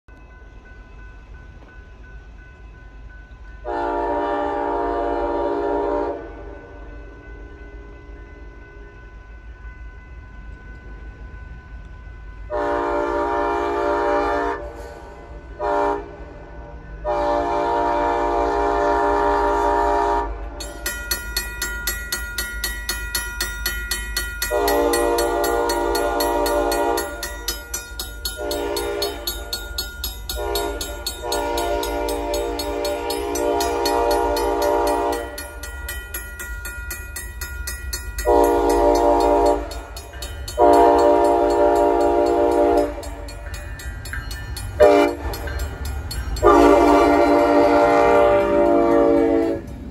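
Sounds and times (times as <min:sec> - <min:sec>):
locomotive air horn blasts: 0:03.6 - 0:06.5, 0:12.5 - 0:15.0, 0:15.6 - 0:16.3, 0:17.0 - 0:20.6, 0:24.5 - 0:27.3, 0:28.3 - 0:29.5, 0:30.3 - 0:35.4, 0:38.2 - 0:39.9, 0:40.6 - 0:43.2, 0:44.8 - 0:45.2, 0:46.4 - 0:49.7
crossing signal bell ringing: 0:20.5 - 0:49.9.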